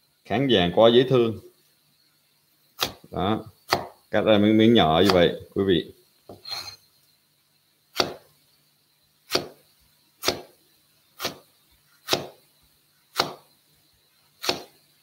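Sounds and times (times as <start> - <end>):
knife chopping on wooden board: 2.8 - 3.1, 3.7 - 4.0, 8.0 - 8.3, 9.3 - 9.6, 10.2 - 10.5, 11.2 - 11.4, 12.0 - 12.4, 13.2 - 13.4, 14.4 - 14.7.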